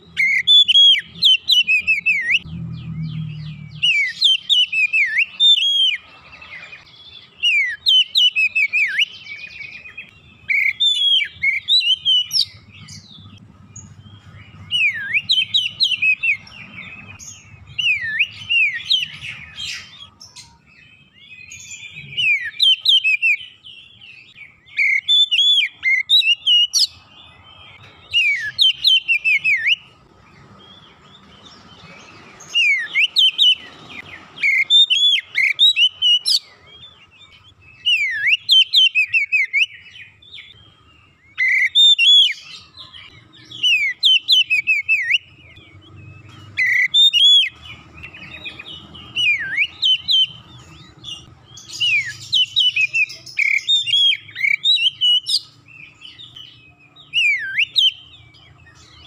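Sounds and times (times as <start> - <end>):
bird singing whistled phrases: 0.0 - 6.0, 6.6 - 13.2, 13.8 - 27.0, 28.1 - 29.9, 32.4 - 40.7, 41.3 - 45.6, 46.6 - 59.0.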